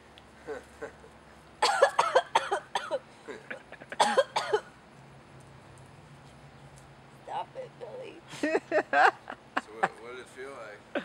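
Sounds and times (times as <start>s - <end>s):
woman coughing hard: 1.6s - 3.0s, 4.0s - 4.6s.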